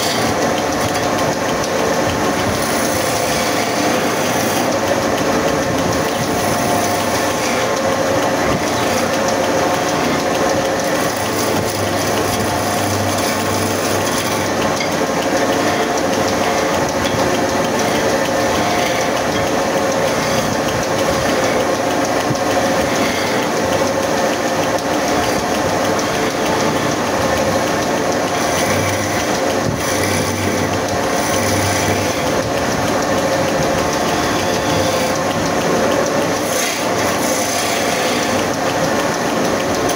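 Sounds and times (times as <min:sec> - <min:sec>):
gouge shaving wood hiss: 0:00.0 - 0:39.2
wood lathe whirring: 0:00.0 - 0:39.9.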